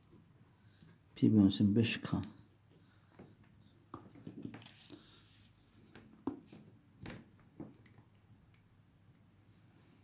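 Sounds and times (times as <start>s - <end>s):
paper rustling on table: 4.1s - 7.2s.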